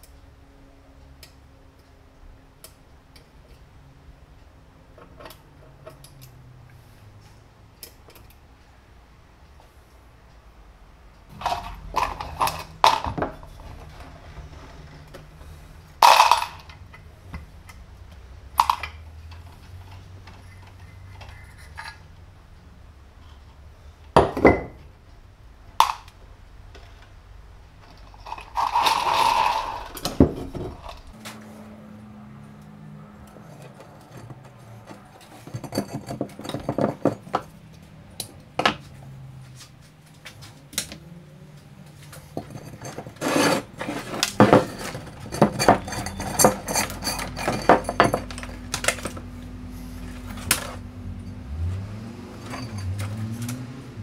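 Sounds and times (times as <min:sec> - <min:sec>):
metal tools clinking on workbench: 0:33.4 - 0:37.4, 0:42.2 - 0:49.2, 0:52.4 - 0:53.6.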